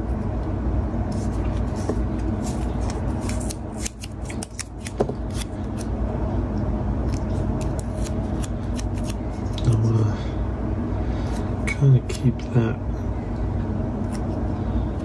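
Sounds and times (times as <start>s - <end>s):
steady low hum: 0.0s - 15.0s
tape clicks and crinkles: 2.3s - 5.9s.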